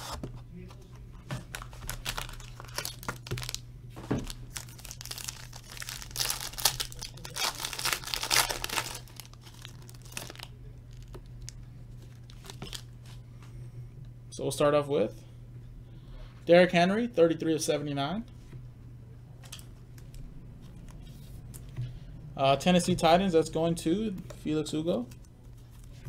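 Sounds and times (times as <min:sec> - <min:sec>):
foil wrapper tearing and crinkling: 0:01.5 - 0:03.6, 0:04.2 - 0:11.2.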